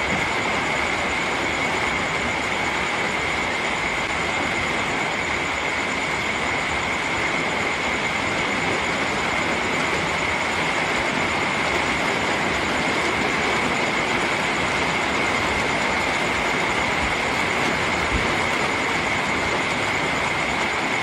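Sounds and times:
soft rain hiss: 0:00.0 - 0:21.0.

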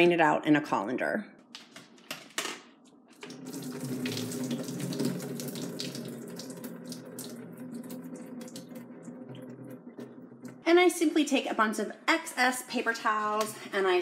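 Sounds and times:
water splashing into a steel sink: 0:03.2 - 0:10.6.

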